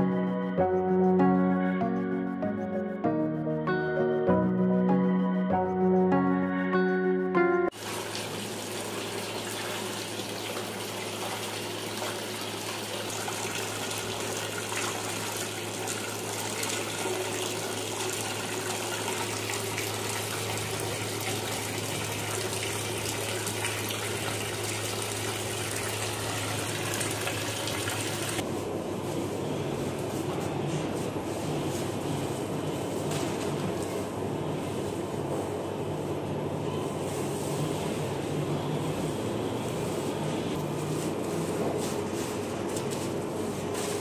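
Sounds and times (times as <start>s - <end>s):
music: 0.0s - 7.8s
water running into steel bowl: 7.8s - 28.4s.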